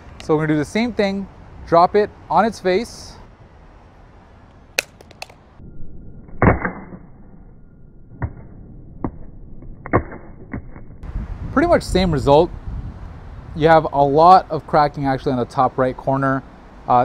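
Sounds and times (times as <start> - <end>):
phone hitting stone paving: 4.8 - 5.4
sharp clicks: 4.8 - 5.4.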